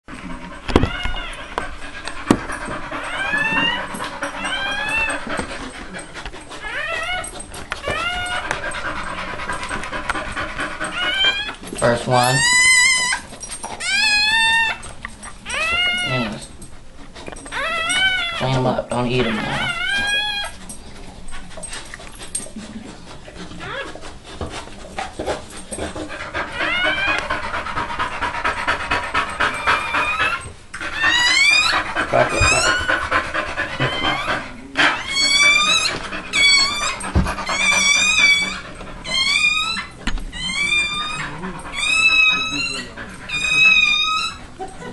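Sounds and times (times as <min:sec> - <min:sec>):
dog panting rapidly: 0:00.1 - 0:44.9
puppy crying high squeals: 0:00.8 - 0:01.5, 0:02.6 - 0:05.5, 0:06.6 - 0:08.8, 0:10.8 - 0:16.5, 0:17.5 - 0:18.6, 0:19.3 - 0:20.6, 0:26.5 - 0:27.4, 0:29.5 - 0:33.0, 0:33.7 - 0:44.5
high rising squeaks: 0:33.8 - 0:44.5.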